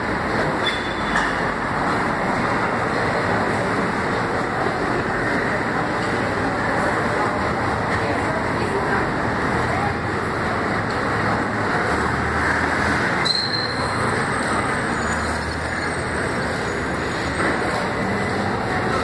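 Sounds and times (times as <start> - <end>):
city street traffic: 0.0 - 19.0.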